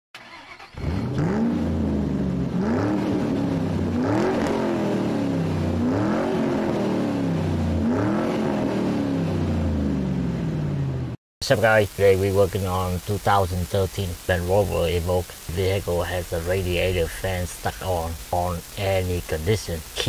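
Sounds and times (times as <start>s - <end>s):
car engine revving: 0.2s - 11.2s, 15.5s - 19.8s.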